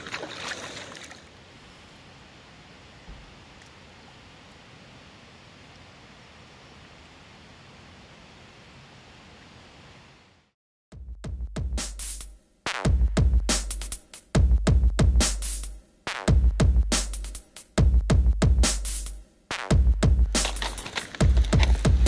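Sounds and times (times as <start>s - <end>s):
electronic music with drum-machine beat: 11.3s - 22.0s.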